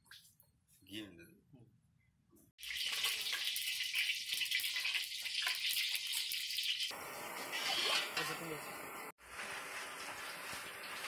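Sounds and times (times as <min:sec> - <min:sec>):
ghee sizzling and bubbling: 0:02.6 - 0:08.4, 0:09.0 - 0:11.0.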